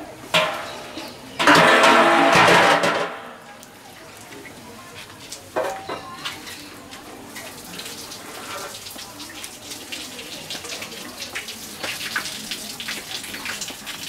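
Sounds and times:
milk pouring and splashing: 6.3 - 14.0.

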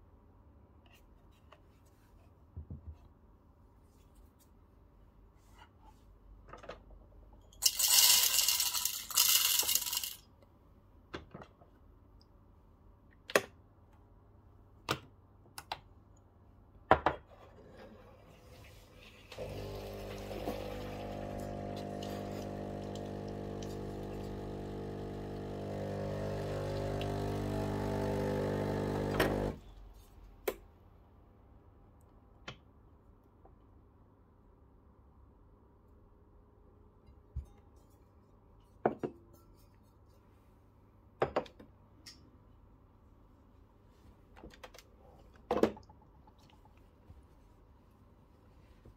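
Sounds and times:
coffee beans rattling into hopper: 7.6 - 10.2
espresso machine running: 7.6 - 10.2, 19.4 - 29.6.

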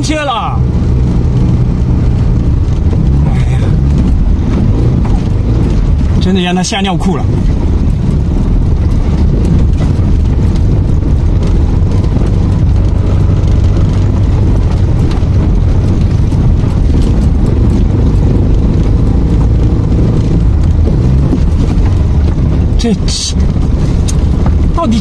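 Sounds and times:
tyres rumbling on gravel: 0.0 - 25.0
stones rattling and knocking: 1.3 - 25.0.

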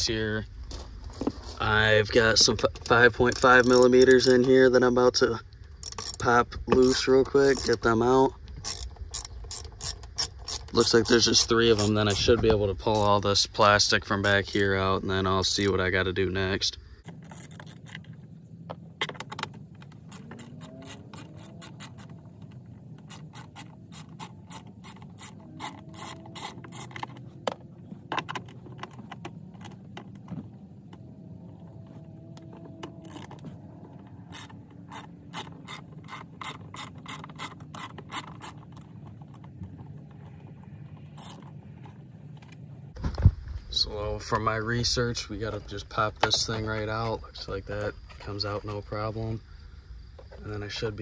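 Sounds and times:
socket ratchet clicking: 2.8 - 4.5, 5.7 - 6.2, 8.6 - 12.2, 19.2 - 29.8, 32.8 - 33.4, 34.3 - 38.9.

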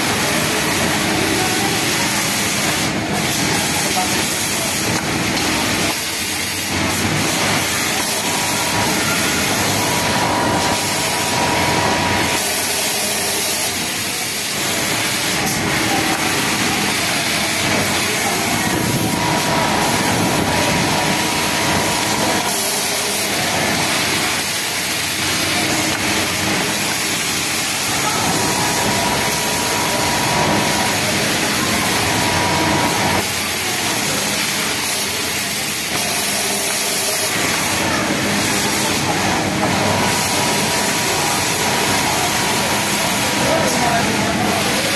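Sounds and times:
sewing machine running: 0.0 - 44.9.

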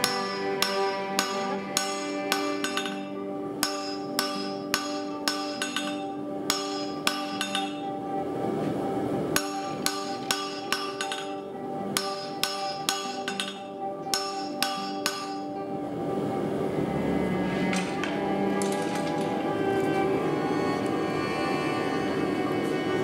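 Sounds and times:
hammer striking steel on an anvil: 0.0 - 8.0, 9.4 - 15.6, 17.6 - 19.4.

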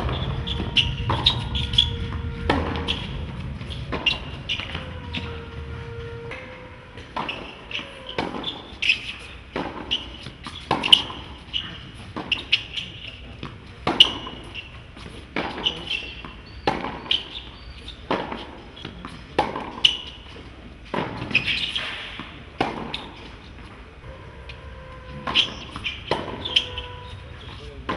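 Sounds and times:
tennis ball bouncing: 7.0 - 11.5, 25.2 - 27.9
rackets striking tennis ball: 7.0 - 23.8, 24.5 - 27.9.

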